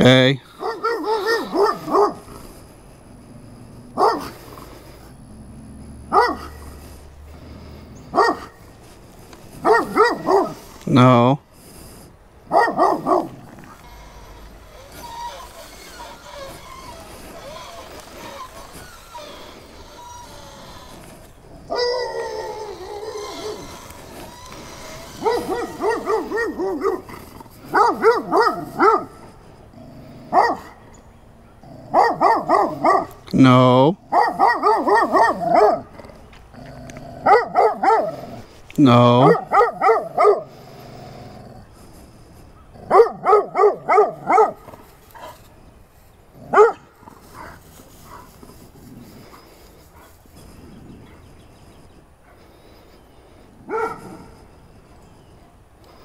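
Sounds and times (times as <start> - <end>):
dog barking: 0.6 - 2.3, 4.0 - 4.4, 6.1 - 6.6, 8.1 - 8.6, 9.6 - 10.6, 12.5 - 13.4, 25.2 - 27.1, 27.7 - 29.2, 30.3 - 30.8, 31.9 - 33.2, 34.1 - 35.9, 37.2 - 38.2, 39.2 - 40.5, 42.8 - 44.6, 46.5 - 48.3, 53.7 - 54.3.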